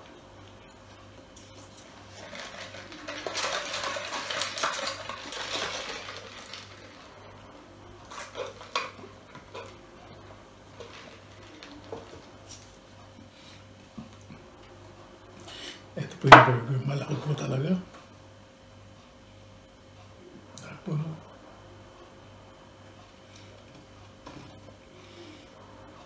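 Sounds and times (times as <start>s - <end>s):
paper cup rattling and clinking: 1.8s - 7.1s.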